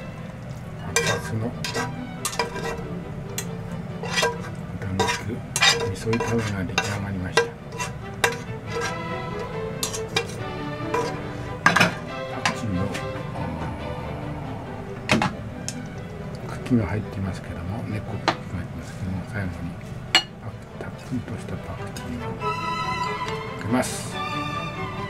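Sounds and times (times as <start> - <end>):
pan sizzling: 0.0 - 13.3, 19.7 - 20.4
metal turner scraping a pan: 0.5 - 13.0.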